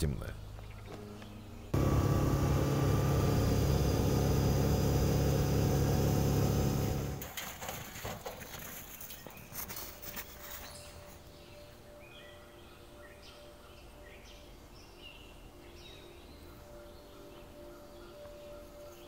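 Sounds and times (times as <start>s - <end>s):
quad bike engine running: 1.8s - 7.3s.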